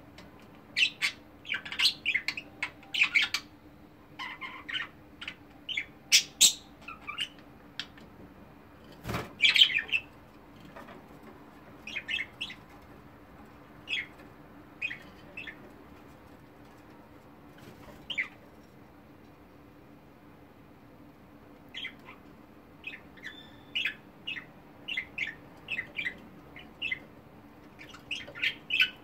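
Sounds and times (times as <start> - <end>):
budgerigars chirping: 0.7 - 3.5, 4.2 - 8.0, 9.4 - 10.1, 11.8 - 12.7, 13.8 - 14.1, 14.8 - 15.6, 18.0 - 18.4, 21.7 - 22.2, 22.8 - 27.1, 27.8 - 29.0.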